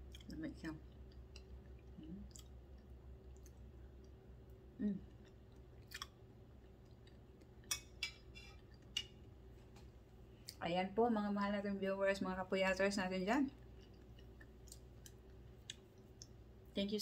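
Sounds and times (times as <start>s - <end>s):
closed-mouth hum: 0.0s - 7.6s
person chewing with wet mouth sounds: 0.0s - 9.4s, 13.6s - 16.6s.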